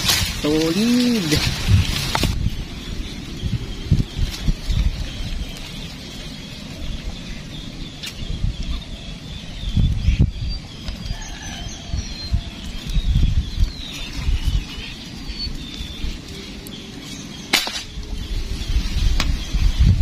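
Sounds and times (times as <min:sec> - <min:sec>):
tall grass rustling: 0:00.0 - 0:09.0, 0:10.0 - 0:20.0.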